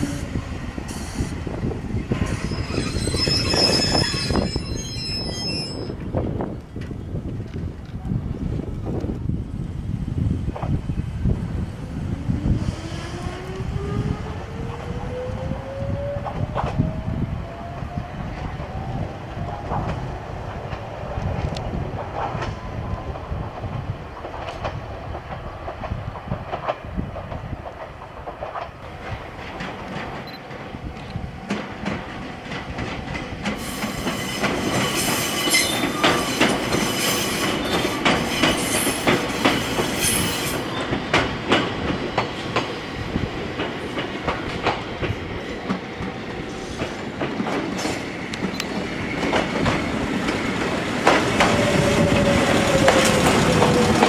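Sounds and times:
high metallic squeal: 2.2s - 6.0s, 33.6s - 40.8s
wheels clacking over rail joints: 23.7s - 54.0s.

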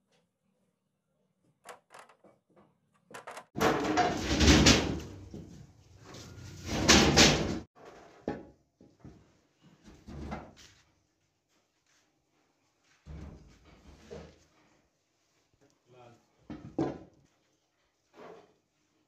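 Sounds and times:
metal castings clattering: 3.6s - 5.3s.

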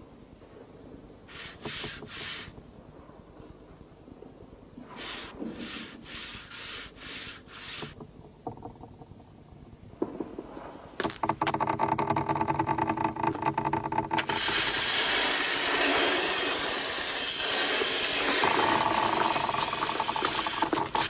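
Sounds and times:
rapid clanking rattle: 11.0s - 21.0s
loud rushing hiss: 14.3s - 20.9s.

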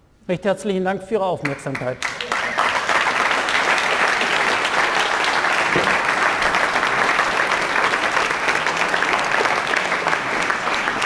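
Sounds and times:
audience applauding: 1.4s - 11.0s.

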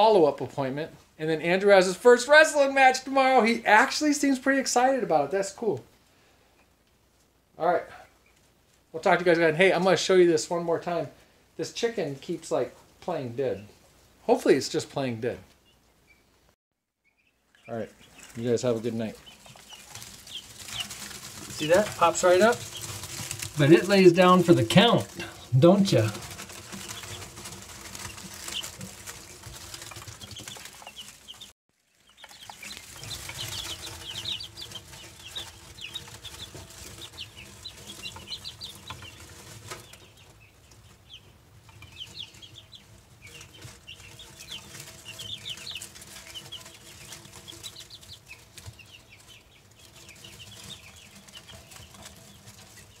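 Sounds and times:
chicks peeping: 17.0s - 53.0s.

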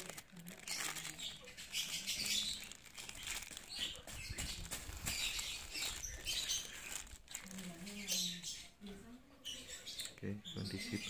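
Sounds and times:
plastic wrap crinkling: 0.0s - 8.5s.

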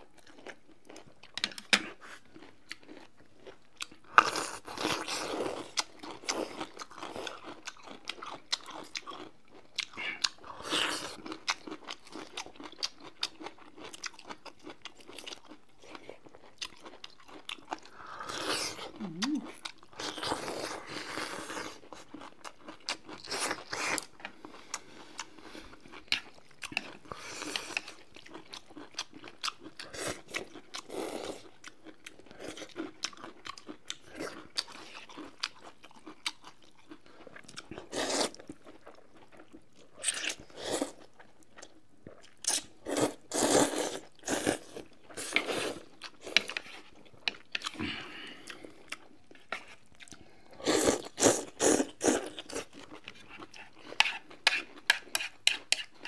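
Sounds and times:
slurping noodles: 42.5s - 46.8s, 50.6s - 55.9s.

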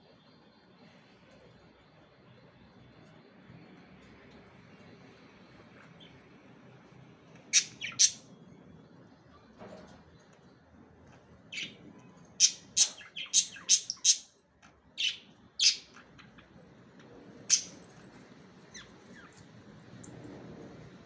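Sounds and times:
budgerigars chirping: 7.5s - 8.2s, 12.4s - 14.3s, 15.0s - 16.0s, 17.5s - 17.8s.

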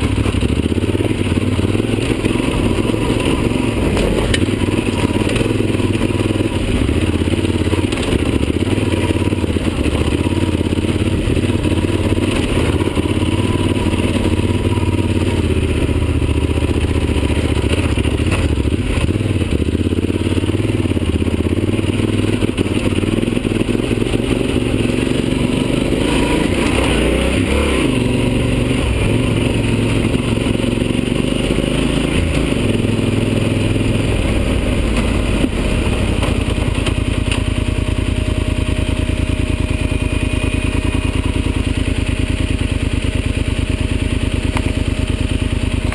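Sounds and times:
motorcycle engine on dirt trail: 0.0s - 45.9s.

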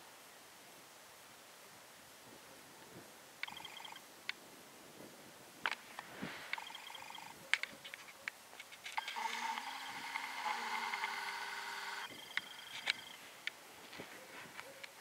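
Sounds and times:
camcorder zoom motor whining: 9.0s - 13.2s.

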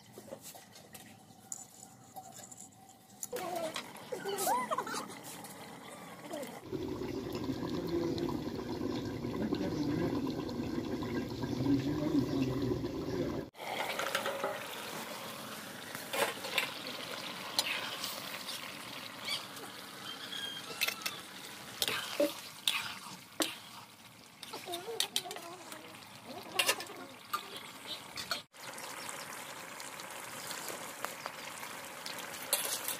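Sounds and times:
curry simmering and bubbling: 3.4s - 32.9s.

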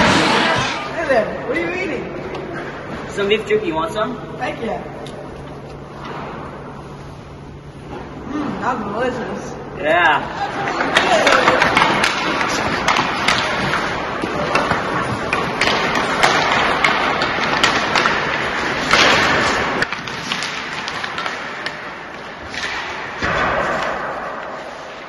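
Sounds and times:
hockey sticks striking pucks: 0.0s - 0.9s, 10.3s - 25.0s
pucks knocking against boards: 10.6s - 24.5s.

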